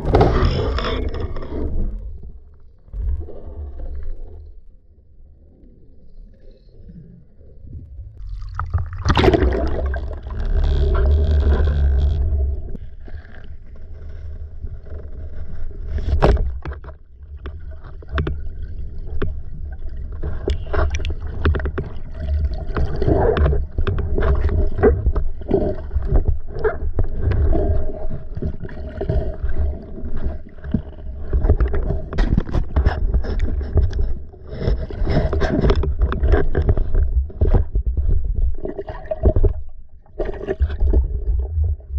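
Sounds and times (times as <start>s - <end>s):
water sloshing and gurgling: 0.0s - 41.9s
steady low rumble: 6.9s - 13.0s.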